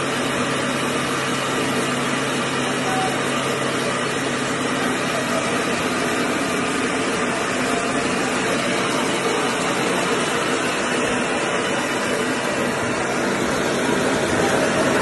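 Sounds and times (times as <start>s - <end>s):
rice mill machine running: 0.0s - 15.0s.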